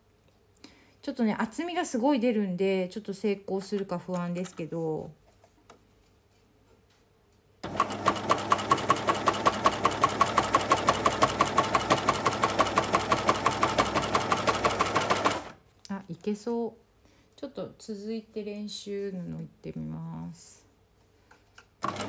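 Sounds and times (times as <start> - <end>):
coverstitch sewing machine running: 7.6 - 15.6.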